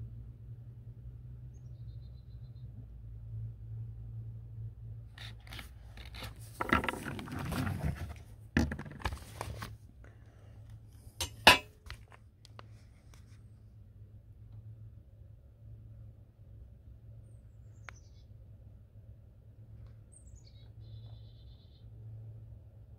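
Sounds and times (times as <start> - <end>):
low steady hum: 0.0 - 22.9.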